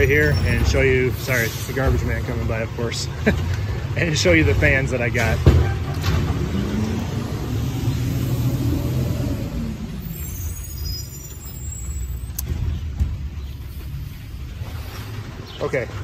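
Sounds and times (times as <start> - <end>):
garbage truck engine rumbling: 0.0 - 16.0
faint high squeals: 9.8 - 12.4.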